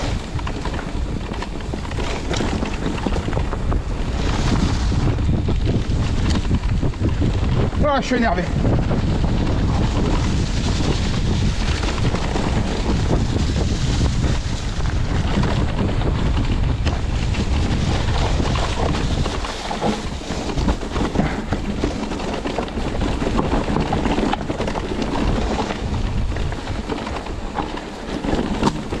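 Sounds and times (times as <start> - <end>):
bike tyres rolling over stones: 0.0 - 29.0
wind buffeting microphone: 0.0 - 29.0.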